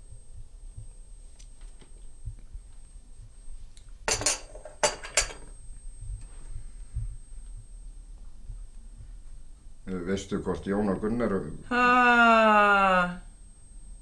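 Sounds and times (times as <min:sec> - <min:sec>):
cup clattering on saucer: 0:04.1 - 0:05.5.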